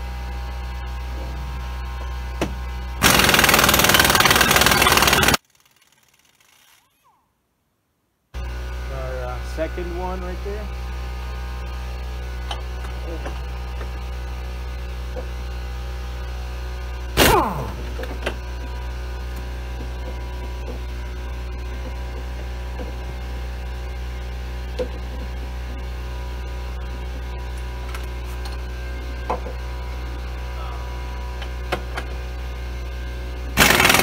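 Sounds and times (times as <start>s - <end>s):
air compressor humming: 0.0s - 5.4s, 8.4s - 34.0s
pneumatic tool burst: 17.2s - 17.8s, 33.6s - 34.0s.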